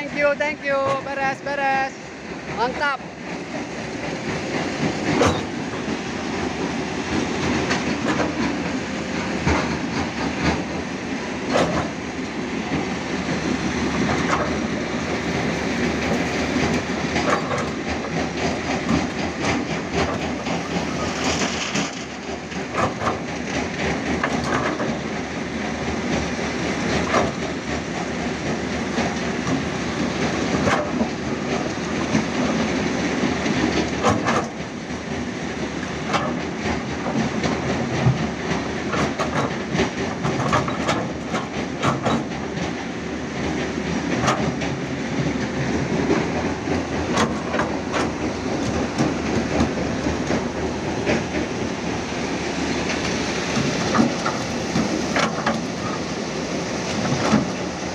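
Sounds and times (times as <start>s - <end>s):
excavator running under load: 0.0s - 57.9s
metal clanks and knocks: 3.6s - 6.0s, 7.2s - 12.0s, 13.9s - 25.0s, 35.8s - 42.8s, 43.5s - 51.8s.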